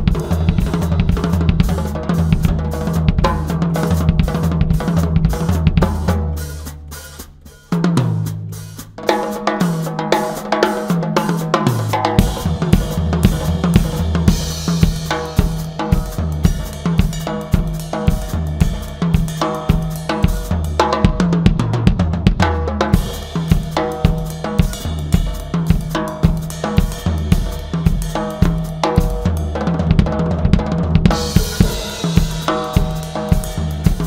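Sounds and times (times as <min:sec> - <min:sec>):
drum kit groove: 0:00.0 - 0:34.0
cymbal crash: 0:31.1 - 0:34.0.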